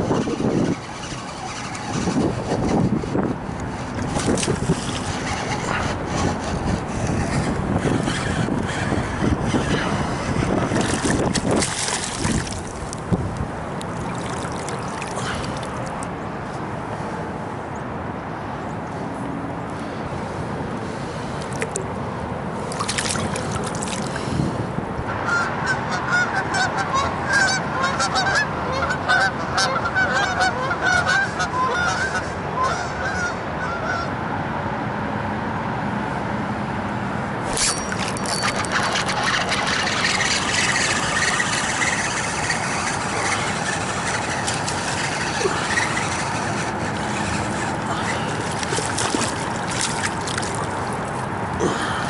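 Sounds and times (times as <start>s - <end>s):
geese honking: 25.3s - 34.1s, 38.3s - 49.4s.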